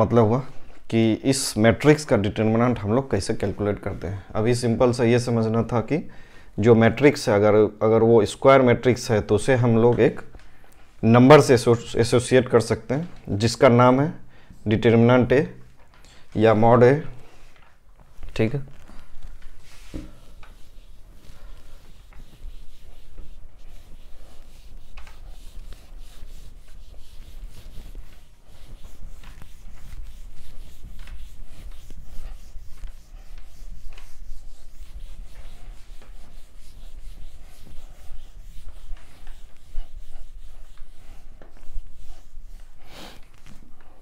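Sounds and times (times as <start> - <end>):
eraser rubbing on whiteboard: 18.7 - 43.9.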